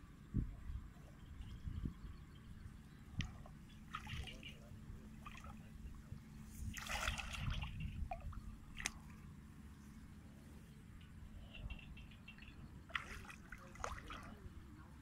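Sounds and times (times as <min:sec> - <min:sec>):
splashing in muddy water: 0:03.2 - 0:09.3, 0:12.3 - 0:14.6.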